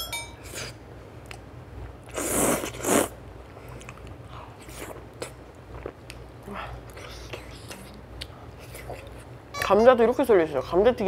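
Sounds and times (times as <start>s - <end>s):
slurping noodles: 2.1s - 3.1s
faint chewing: 2.1s - 9.4s.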